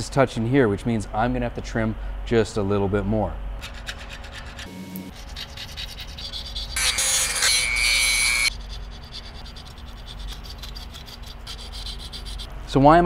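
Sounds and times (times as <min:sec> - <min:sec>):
file scraping metal: 0:03.6 - 0:12.5
loud harsh scrape with high tone: 0:04.6 - 0:09.6.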